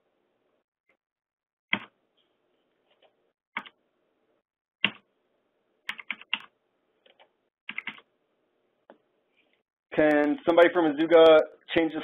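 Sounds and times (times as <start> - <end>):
keyboard keys tapping: 5.9 - 8.0.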